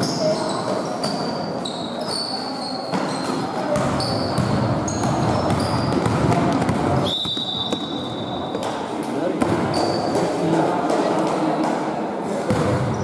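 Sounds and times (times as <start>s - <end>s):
sneakers squeaking on court floor: 0.0s - 10.3s
basketball bouncing thuds: 3.8s - 7.8s.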